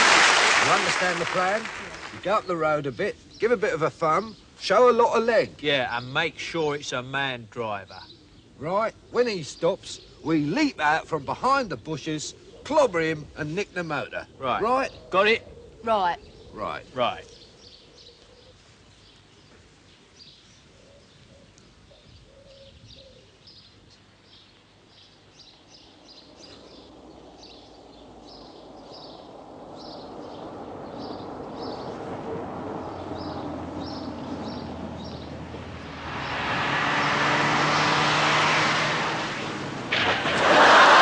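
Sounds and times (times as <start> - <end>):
car approaching: 0.0 - 6.3, 25.8 - 41.0
small birds chirping: 0.6 - 38.1.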